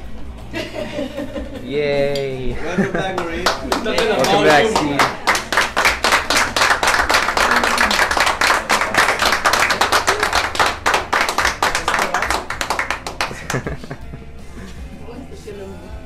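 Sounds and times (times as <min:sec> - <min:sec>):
people clapping: 0:02.1 - 0:14.1.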